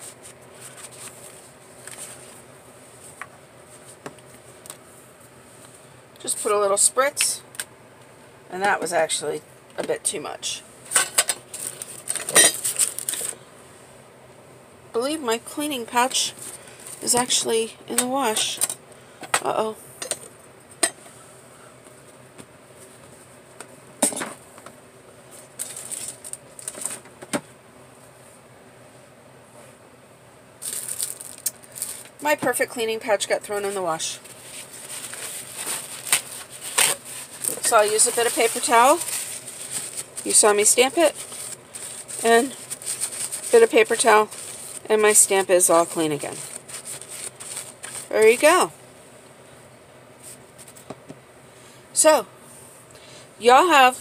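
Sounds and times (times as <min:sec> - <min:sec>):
paper rustling: 0:00.0 - 0:02.4, 0:25.3 - 0:27.0, 0:33.6 - 0:44.9, 0:45.9 - 0:48.5
faint steady hum: 0:00.0 - 0:54.0.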